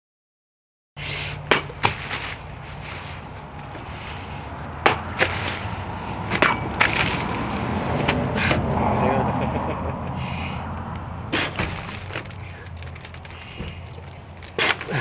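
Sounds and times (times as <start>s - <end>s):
blade slicing plastic bottles: 1.2s - 2.5s, 4.8s - 8.2s, 11.3s - 15.0s.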